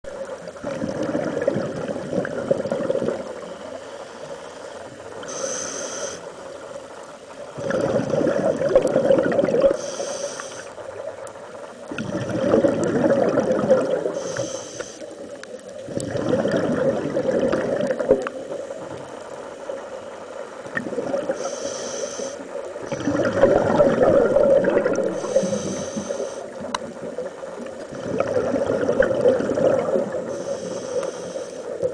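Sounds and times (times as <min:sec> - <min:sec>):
exhaled bubbles underwater: 0:00.0 - 0:03.7, 0:07.4 - 0:10.0, 0:11.0 - 0:21.6, 0:22.5 - 0:31.9
regulator inhale hiss: 0:03.4 - 0:07.0, 0:09.7 - 0:11.0, 0:14.1 - 0:15.3, 0:21.3 - 0:23.1, 0:25.1 - 0:26.7, 0:30.1 - 0:31.9.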